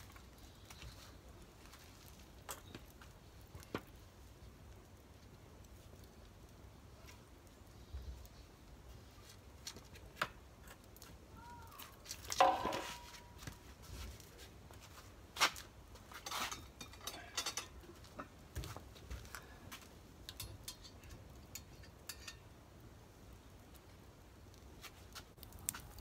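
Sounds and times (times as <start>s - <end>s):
cast iron cookware clinking: 12.4s - 13.4s, 16.2s - 18.3s, 20.2s - 22.6s.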